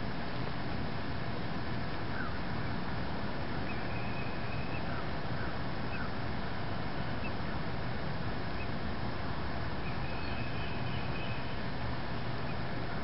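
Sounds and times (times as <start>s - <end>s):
outdoor background noise: 0.0s - 13.0s
faint bird chirps: 3.6s - 6.2s, 9.8s - 11.6s.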